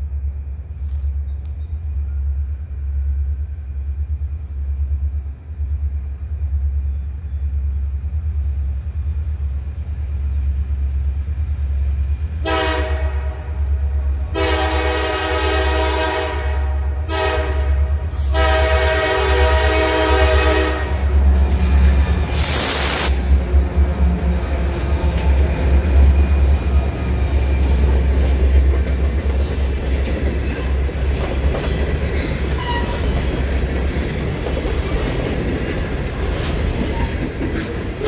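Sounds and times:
locomotive rumbling: 0:00.0 - 0:38.0
train horn blasts: 0:12.4 - 0:21.8, 0:32.6 - 0:33.0.

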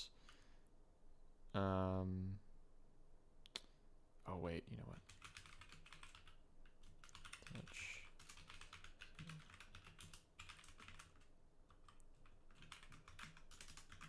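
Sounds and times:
faint keyboard typing: 0:04.9 - 0:14.0.

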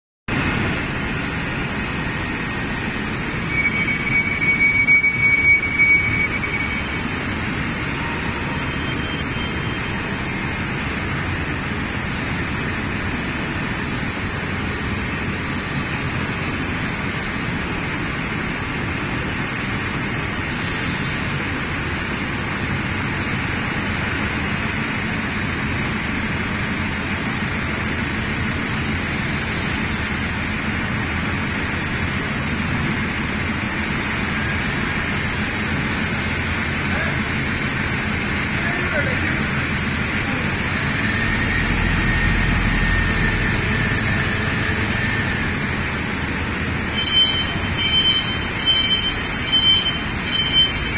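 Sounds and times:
high whine: 0:00.3 - 0:19.5, 0:20.2 - 0:50.9
forklift engine running: 0:00.3 - 0:20.3, 0:21.4 - 0:50.9
factory machine noise: 0:00.3 - 0:50.9
hydraulics working: 0:20.5 - 0:50.9.

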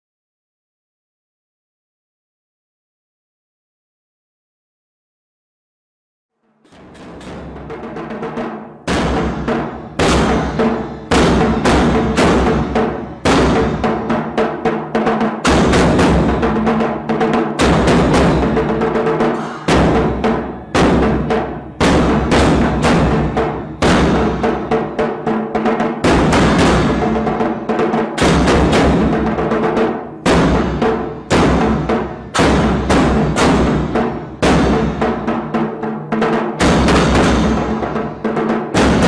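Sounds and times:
booming drum hits: 0:06.7 - 0:39.0.

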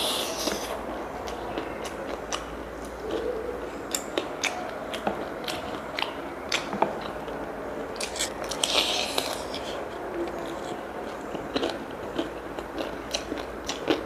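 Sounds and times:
crunchy fried chicken chewing: 0:08.0 - 0:14.0.

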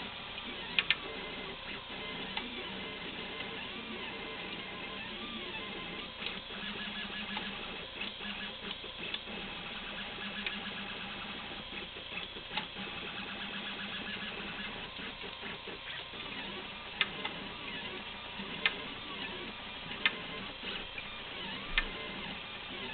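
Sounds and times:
small clicks: 0:00.4 - 0:01.0
stepper motors buzzing: 0:12.5 - 0:22.9.

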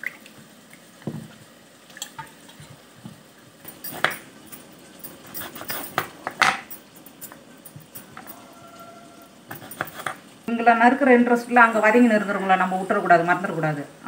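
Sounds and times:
kitchen utensils knocking and clinking: 0:02.5 - 0:08.6, 0:09.5 - 0:10.2.

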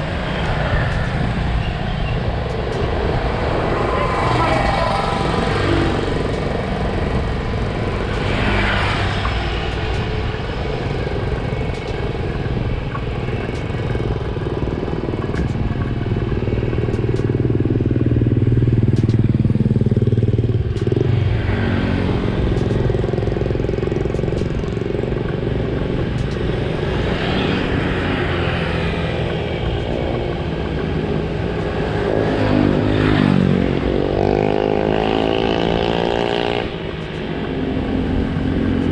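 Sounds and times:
wind noise: 0:00.0 - 0:38.9
motorcycle engine running: 0:09.6 - 0:38.9.

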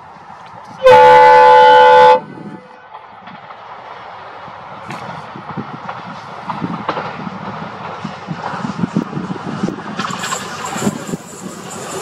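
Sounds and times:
locomotive horn: 0:00.7 - 0:03.0
train wheels clattering on rails: 0:02.8 - 0:12.0.

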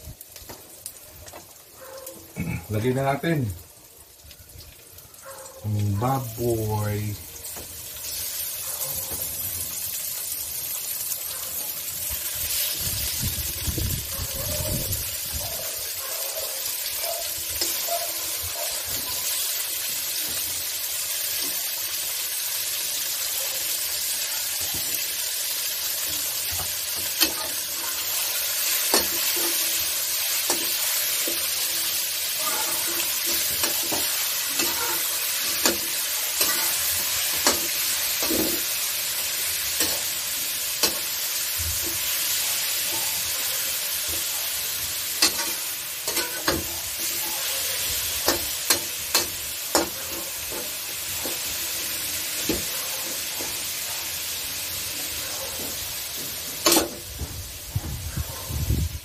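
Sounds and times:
meat sizzling in hot oil: 0:00.0 - 0:59.0
metal spatula scraping wok: 0:26.2 - 0:41.2, 0:45.1 - 0:51.5.

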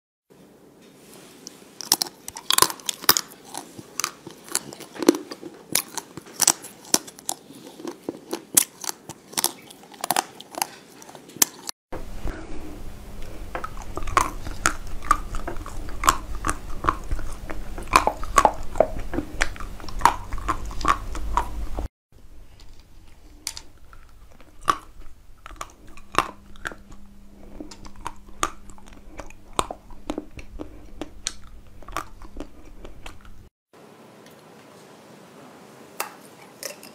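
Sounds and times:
crunchy chewing: 0:01.5 - 0:11.8, 0:13.1 - 0:33.5
frozen chocolate cracking: 0:01.8 - 0:11.7.

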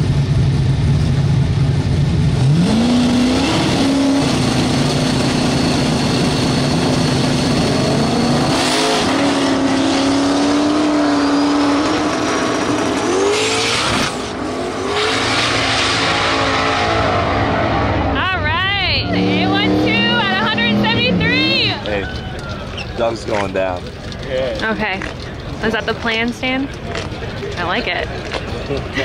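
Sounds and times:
race car engine revving: 0:02.2 - 0:22.0
cars accelerating away: 0:02.3 - 0:22.0.

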